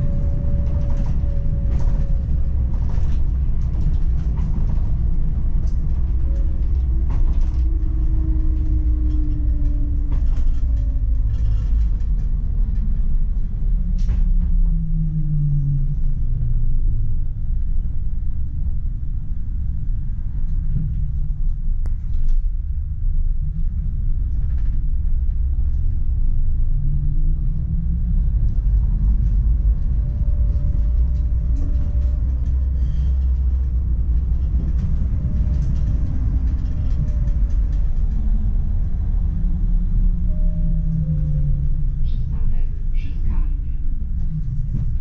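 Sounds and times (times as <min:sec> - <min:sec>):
tram wheels rumbling on rails: 0:00.0 - 0:45.0
faint wavering whine: 0:29.2 - 0:43.0.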